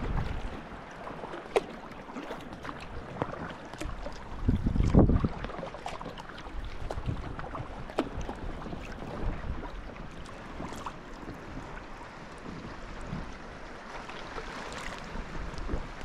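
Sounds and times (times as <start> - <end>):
paddle splashing water: 0.0 - 16.0
water washing and lapping: 0.0 - 16.0.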